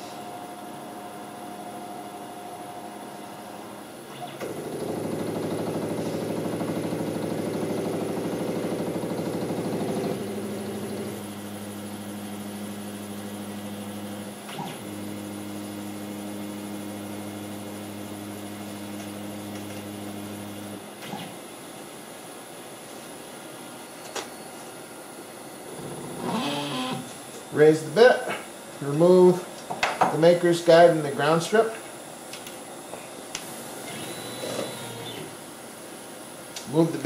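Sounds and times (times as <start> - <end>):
stepper motors whining: 25.8 - 27.2, 33.8 - 35.4.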